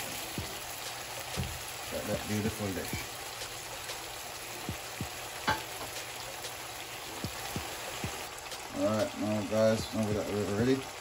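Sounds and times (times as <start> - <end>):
vegetables sizzling in oil: 0.0 - 11.0
soft taps and pops: 0.3 - 0.6, 1.2 - 1.7, 4.6 - 6.6, 7.2 - 8.3.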